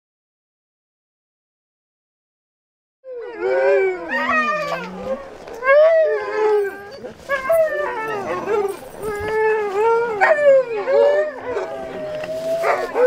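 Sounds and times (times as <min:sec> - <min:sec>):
dog whining and howling: 0:03.1 - 0:13.0.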